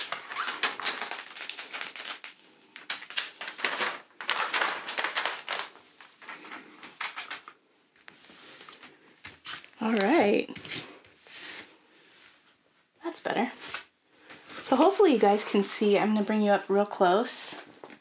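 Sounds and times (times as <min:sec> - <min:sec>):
plastic film crinkling: 0:00.0 - 0:10.9.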